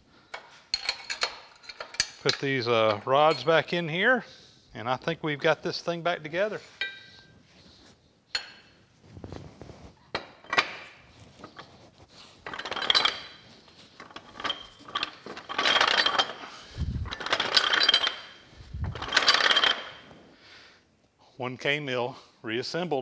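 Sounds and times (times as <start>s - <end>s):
metal-on-metal scraping and rattling: 0.3s - 3.6s, 10.2s - 20.2s
metal clinks and knocks: 0.3s - 3.7s, 6.8s - 7.3s, 8.3s - 8.8s, 10.1s - 11.8s, 12.4s - 20.0s.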